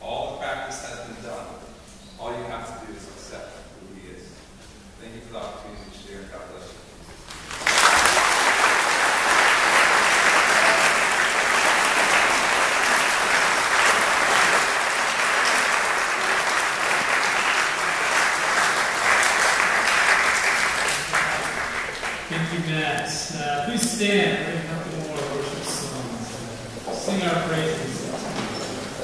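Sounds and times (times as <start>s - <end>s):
congregation applauding: 7.3s - 29.0s.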